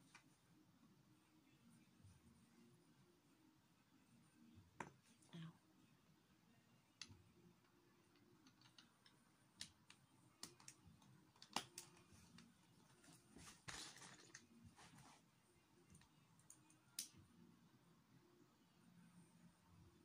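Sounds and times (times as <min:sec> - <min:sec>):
plastic bricks clicking: 0:08.4 - 0:09.7.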